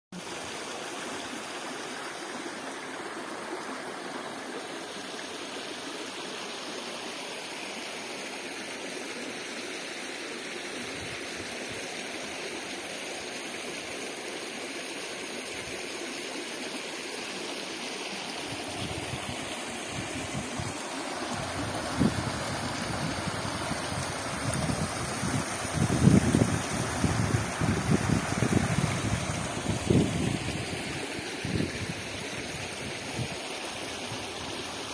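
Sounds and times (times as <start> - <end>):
stream rushing over rocks: 0.2 - 34.9.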